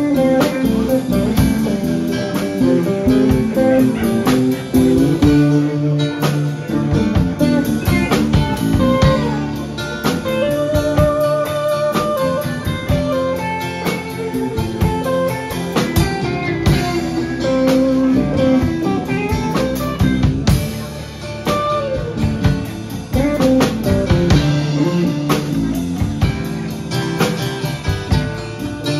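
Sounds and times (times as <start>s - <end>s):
gliding guitar line: 0.0s - 28.9s
live band playing instrumental: 0.0s - 28.9s.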